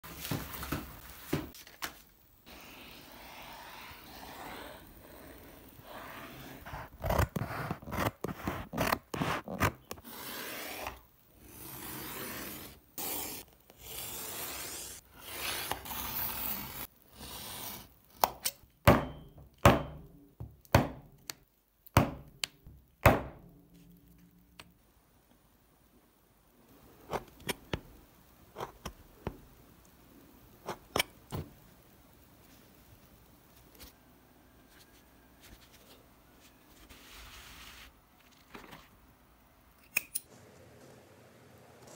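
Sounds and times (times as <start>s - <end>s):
scribe scratching leather: 2.5s - 17.8s.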